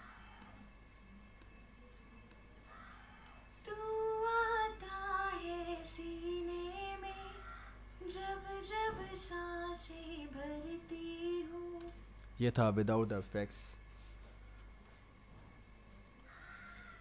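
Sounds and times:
woman singing: 3.7 - 12.0.

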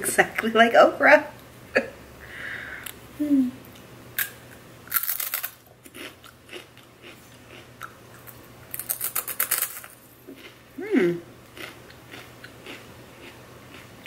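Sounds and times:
crunchy biting and chewing: 4.2 - 10.6, 11.5 - 14.0.

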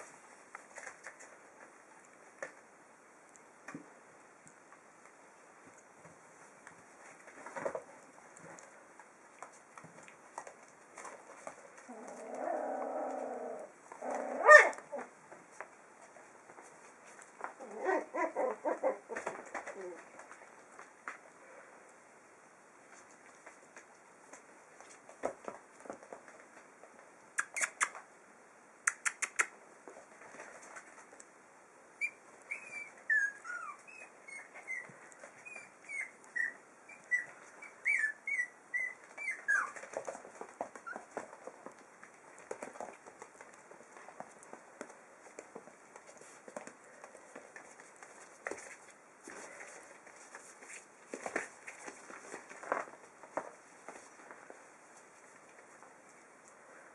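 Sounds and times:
puppies whining and yelping: 17.6 - 19.8, 32.0 - 40.1, 40.7 - 41.3.

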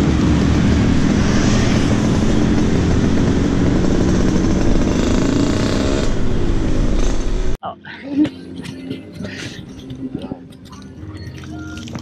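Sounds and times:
motorbike engines passing: 0.0 - 7.6
road noise hiss: 0.0 - 7.6.

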